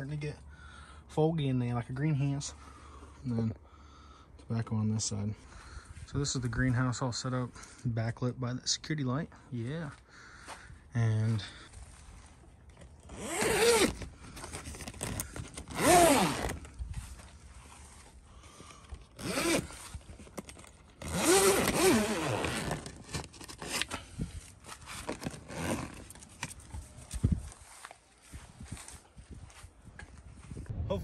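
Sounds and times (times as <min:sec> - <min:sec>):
zipper being pulled: 0:13.0 - 0:16.8, 0:19.1 - 0:24.0, 0:24.7 - 0:26.6
plastic cover rustling: 0:13.8 - 0:18.2.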